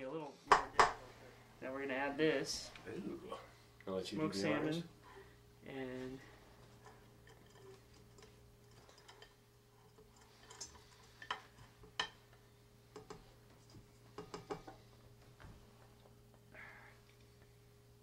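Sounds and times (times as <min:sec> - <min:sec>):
faint steady hum: 0:00.0 - 0:18.0
spatula tapping against bowls: 0:12.9 - 0:13.3, 0:14.1 - 0:14.8.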